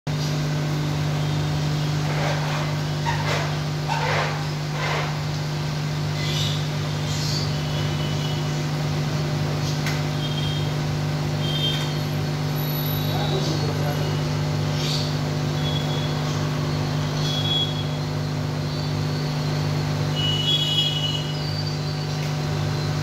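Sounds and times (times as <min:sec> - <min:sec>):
low mechanical hum: 0:00.1 - 0:23.0.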